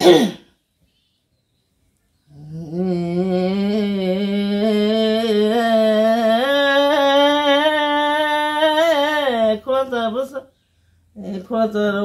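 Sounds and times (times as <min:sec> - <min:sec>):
elderly woman singing unaccompanied: 0:02.3 - 0:10.5, 0:11.2 - 0:12.0.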